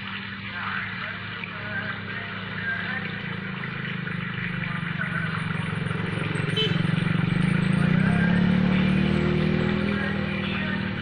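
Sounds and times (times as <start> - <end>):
small engine humming: 0.0 - 11.0.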